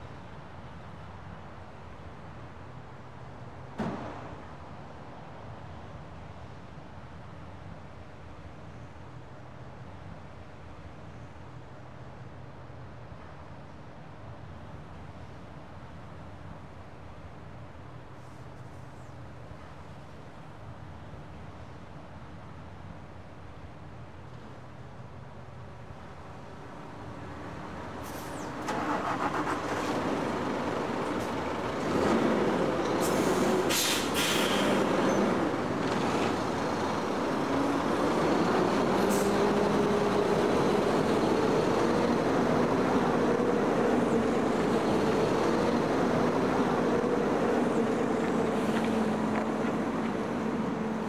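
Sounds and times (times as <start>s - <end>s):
truck diesel engine pulling away: 26.6s - 51.0s
air brake hisses: 33.0s - 34.9s.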